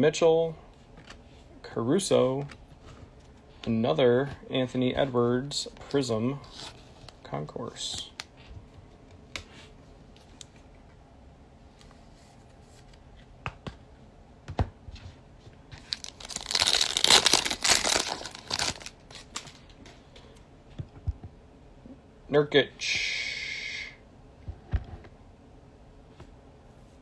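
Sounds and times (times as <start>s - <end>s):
foil wrapper ripping: 15.8s - 19.6s.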